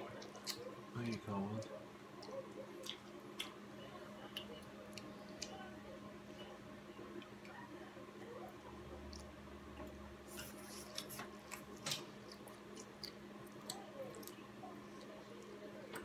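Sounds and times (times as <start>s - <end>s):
steady low hum: 0.0s - 16.0s
mouth clicks and smacks: 2.2s - 3.6s
child chewing and slurping: 10.2s - 15.6s.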